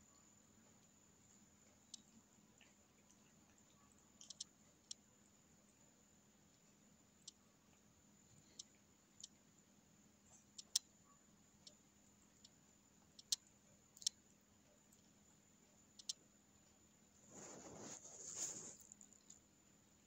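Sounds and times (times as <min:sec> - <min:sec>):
cat chewing grass clicks: 0:00.7 - 0:05.0.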